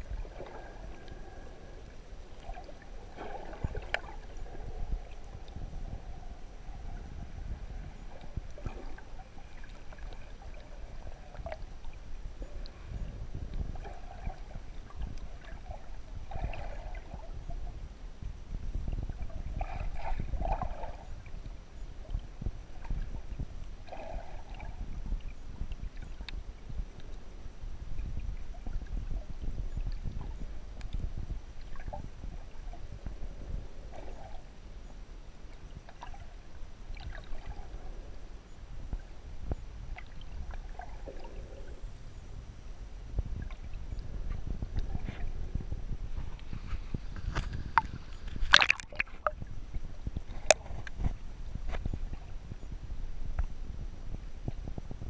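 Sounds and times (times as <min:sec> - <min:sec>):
muffled underwater rumble: 0:00.0 - 0:55.0
faint click: 0:25.7 - 0:26.4, 0:30.8 - 0:31.1.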